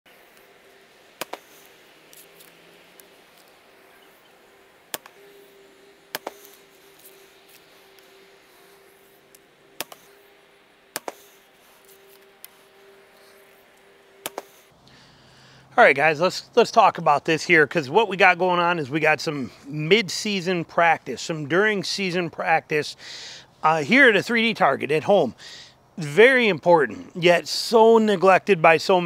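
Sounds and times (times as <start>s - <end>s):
faint steady hum: 0.1s - 29.0s
arrows thumping into foam target: 1.2s - 1.7s, 6.1s - 6.6s, 9.8s - 10.1s, 10.9s - 11.4s, 14.2s - 14.6s
arrows drawn from quiver: 4.9s - 9.2s, 9.8s - 10.3s, 10.9s - 13.5s, 14.2s - 14.7s.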